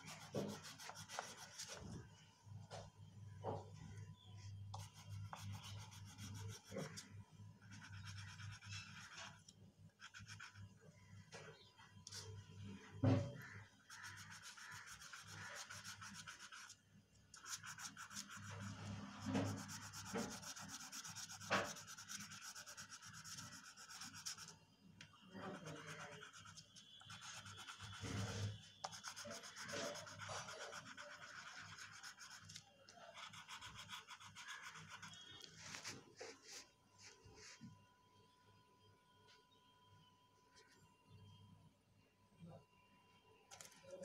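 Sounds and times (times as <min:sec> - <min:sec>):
pencil colouring on paper: 0:00.0 - 0:01.9, 0:04.7 - 0:10.8, 0:13.4 - 0:16.8, 0:17.4 - 0:24.5, 0:25.3 - 0:36.5.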